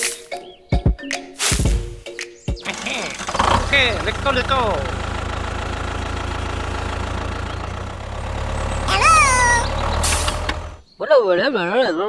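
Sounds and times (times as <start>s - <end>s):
tractor engine chugging: 2.6s - 10.8s
high squeaky call: 8.9s - 10.4s.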